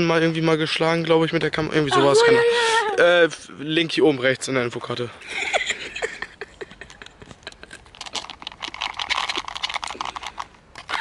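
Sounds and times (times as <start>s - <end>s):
plastic packaging crinkling: 7.9s - 11.0s.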